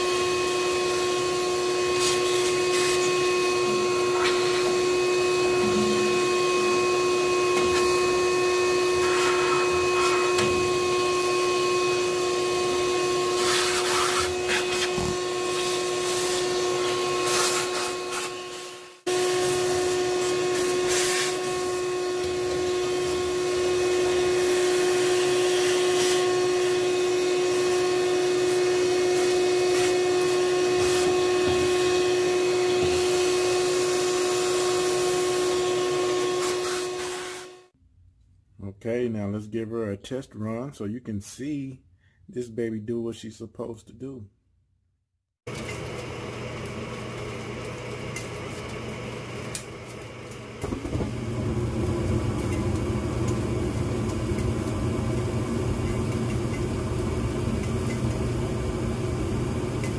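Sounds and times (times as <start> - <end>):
vacuum motor whine and hiss: 0.0 - 37.7, 45.5 - 59.9.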